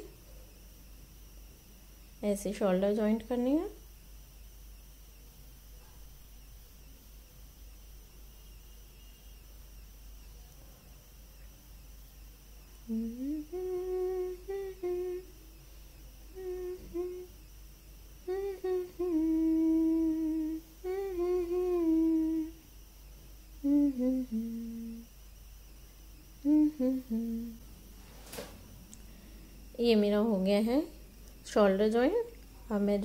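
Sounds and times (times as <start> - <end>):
woman humming a tune: 12.8 - 15.5, 16.2 - 17.4, 18.2 - 22.6, 23.6 - 25.1, 26.3 - 27.7.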